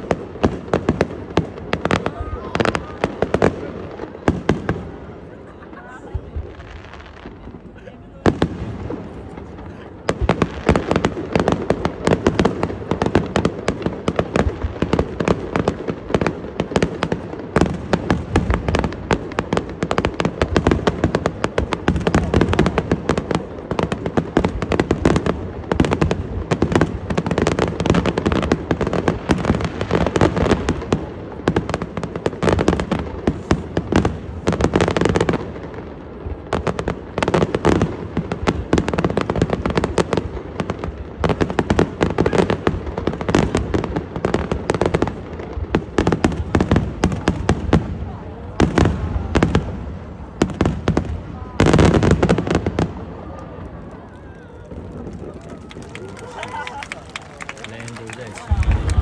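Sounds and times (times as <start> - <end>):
fireworks bursting and crackling: 0.0 - 59.0.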